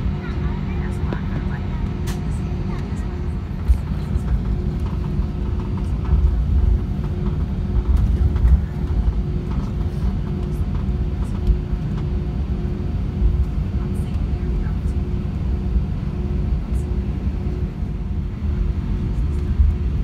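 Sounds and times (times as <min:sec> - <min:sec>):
low rumble of engines: 0:00.0 - 0:20.0
bumps and light rattles: 0:01.0 - 0:16.5.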